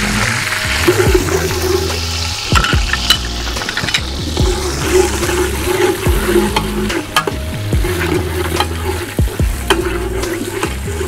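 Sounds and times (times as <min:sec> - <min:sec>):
onions sizzling in a pot: 0:00.0 - 0:11.0
steel ladle clinking against pot: 0:06.3 - 0:10.8.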